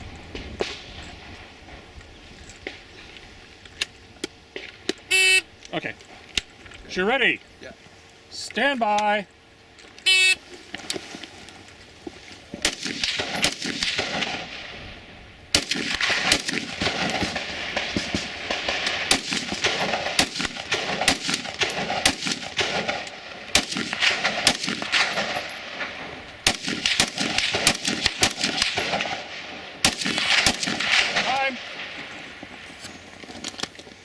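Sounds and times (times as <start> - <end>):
gunshot echoes: 12.6 - 14.8, 15.5 - 32.0
rapid rifle fire: 12.6 - 14.8, 15.5 - 32.0.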